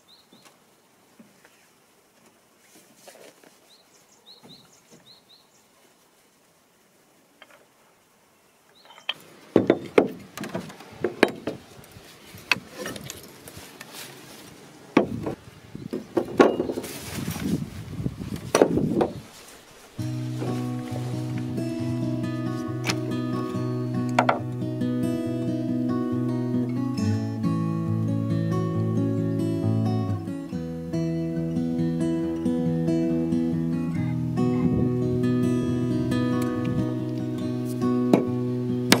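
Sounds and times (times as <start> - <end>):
axes knocking on wooden bench: 9.6 - 11.6, 24.2 - 24.4
canvas bag rustling: 12.0 - 14.9, 16.5 - 23.8.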